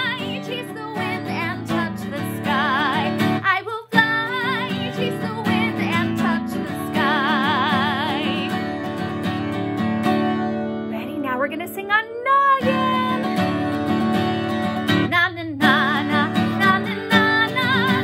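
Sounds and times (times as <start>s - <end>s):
person singing with vibrato: 0.0s - 8.7s, 11.0s - 13.5s, 15.0s - 18.0s
guitar accompaniment: 0.0s - 18.0s.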